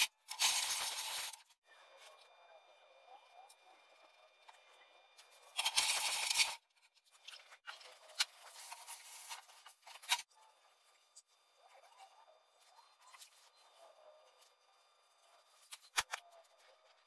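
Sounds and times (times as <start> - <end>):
scraping and rubbing: 5.4 - 10.3.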